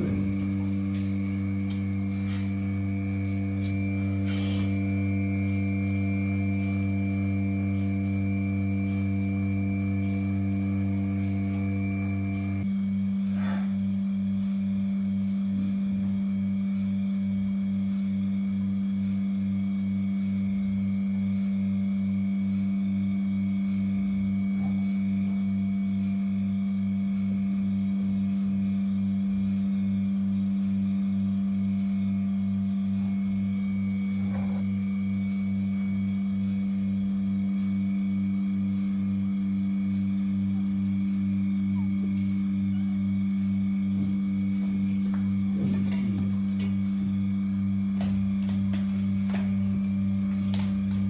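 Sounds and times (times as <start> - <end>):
pulsator pulsing: 0.0 - 12.7
milking machine vacuum hum: 0.0 - 51.0.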